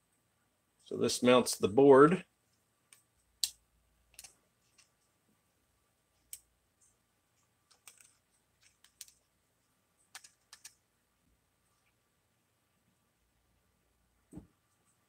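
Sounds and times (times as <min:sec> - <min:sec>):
small plastic parts handled: 0:06.2 - 0:09.3.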